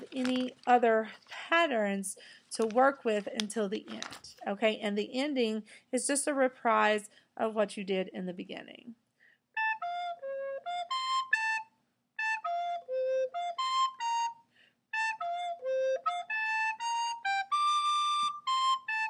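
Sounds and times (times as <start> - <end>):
recorder playing short notes: 9.6 - 14.4.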